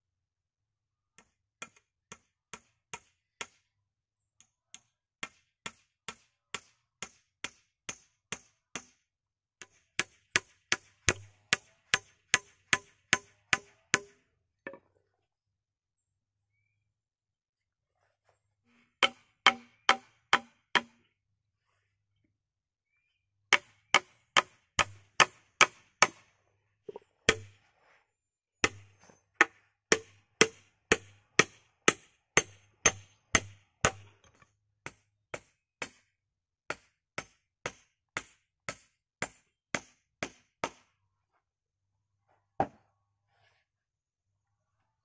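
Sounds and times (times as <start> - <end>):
hatchet chopping wood: 1.2 - 3.6, 4.7 - 9.0, 9.6 - 14.8, 19.0 - 21.0, 23.5 - 26.3, 27.3 - 27.6, 28.6 - 36.1, 36.7 - 40.9.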